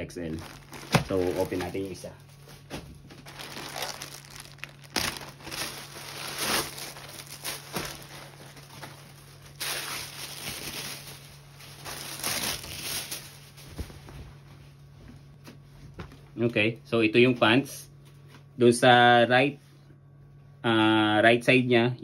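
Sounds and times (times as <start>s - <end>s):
plastic bag crinkling: 0.0s - 13.9s
plastic sheet rustling: 0.0s - 14.5s.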